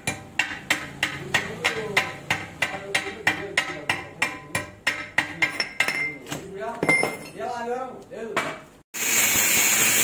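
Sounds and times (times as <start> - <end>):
hammer beating metal on anvil: 0.0 - 6.2.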